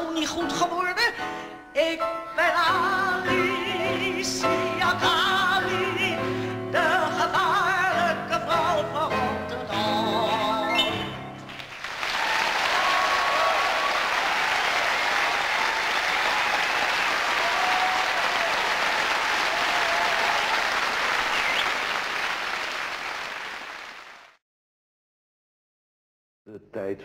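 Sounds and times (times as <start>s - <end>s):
audience applauding: 11.4s - 24.4s.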